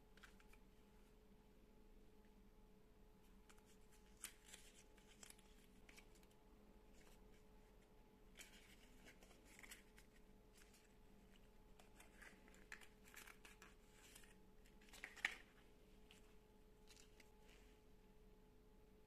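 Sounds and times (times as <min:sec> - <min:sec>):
cardboard card being handled: 0:03.4 - 0:17.7
paper stickers rustling: 0:03.5 - 0:17.6.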